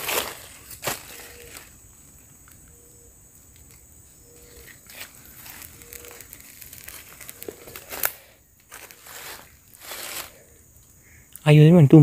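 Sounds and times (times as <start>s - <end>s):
hands rustling in leaves: 0.0s - 1.8s, 4.4s - 10.6s.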